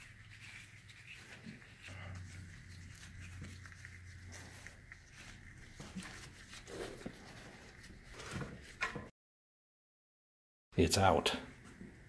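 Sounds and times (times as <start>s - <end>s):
gloved hands rubbing: 0.0s - 8.8s.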